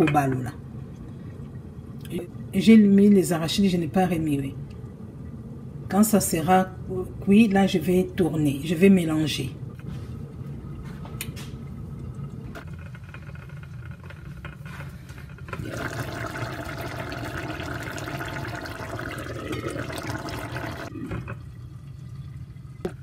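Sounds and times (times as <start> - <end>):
stew bubbling in a pot: 11.8 - 23.0.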